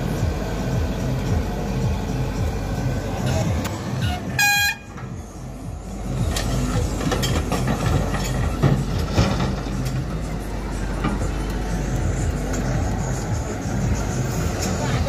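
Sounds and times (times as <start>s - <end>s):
excavator running under load: 0.0s - 15.0s.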